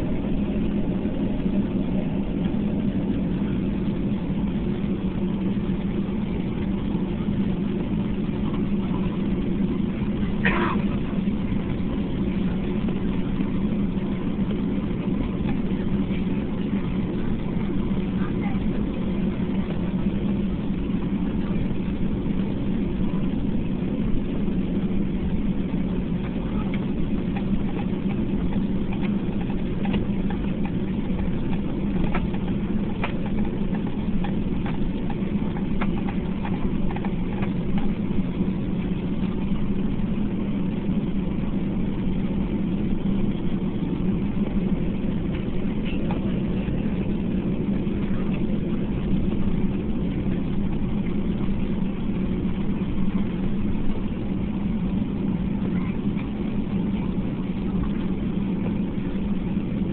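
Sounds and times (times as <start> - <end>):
jet engines low hum: 0.0 - 59.9.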